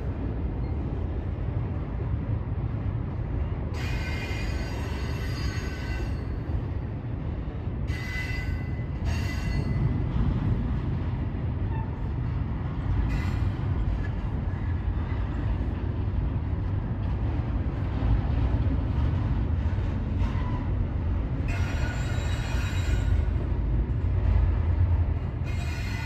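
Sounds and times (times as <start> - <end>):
train rumbling over bridge: 0.0 - 26.0
high-pitched wheel squeals: 21.5 - 23.3.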